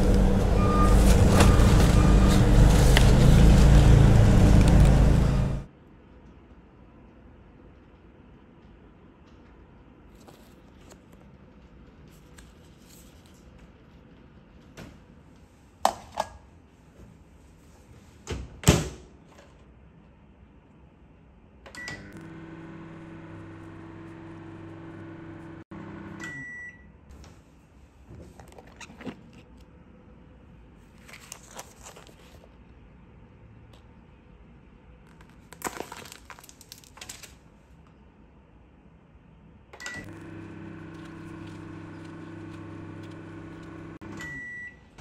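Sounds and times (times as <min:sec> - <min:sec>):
microwave beeps: 0:00.0 - 0:02.8, 0:21.7 - 0:27.0, 0:39.8 - 0:45.0
microwave humming: 0:00.0 - 0:05.7, 0:21.7 - 0:27.0, 0:39.7 - 0:45.0
packaging rustling: 0:31.0 - 0:32.4, 0:35.1 - 0:37.4.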